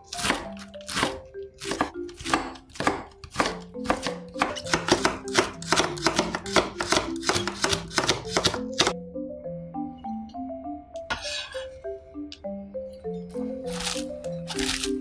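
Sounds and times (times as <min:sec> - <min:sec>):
light background music: 0:00.0 - 0:15.0
knife chopping on wooden board: 0:00.1 - 0:09.0.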